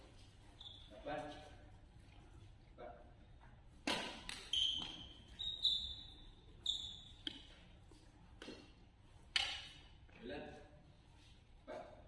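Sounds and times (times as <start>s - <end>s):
shoes squeaking on floor: 0.0s - 1.7s, 4.2s - 7.7s
racket hitting shuttlecock: 3.8s - 5.1s.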